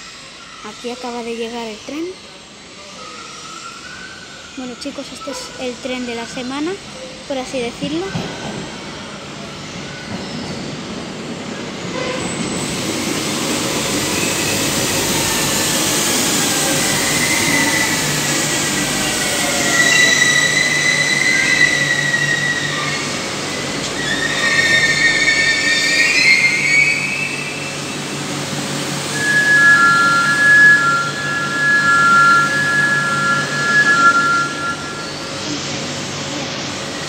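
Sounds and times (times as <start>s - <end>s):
train running noise: 0.0s - 37.0s
brakes squealing: 13.2s - 37.0s.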